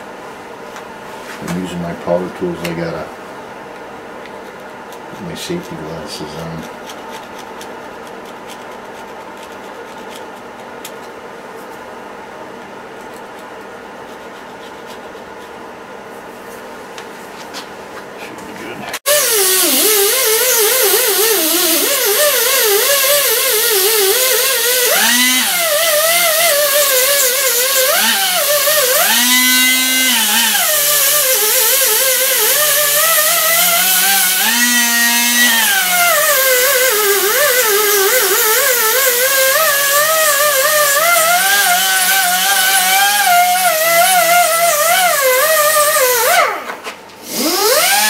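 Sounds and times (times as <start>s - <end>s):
die grinder whining: 19.1s - 48.0s.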